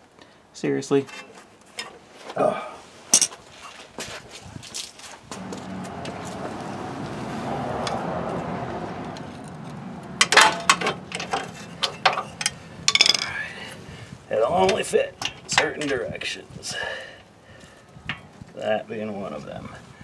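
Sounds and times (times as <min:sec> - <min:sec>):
smooth rushing sound: 0:05.4 - 0:12.9.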